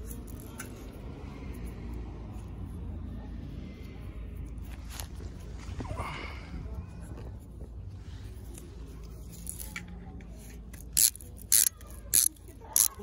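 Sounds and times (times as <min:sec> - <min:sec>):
faint low outdoor rumble: 0:00.0 - 0:13.0
sharp plastic clicks: 0:09.5 - 0:13.0.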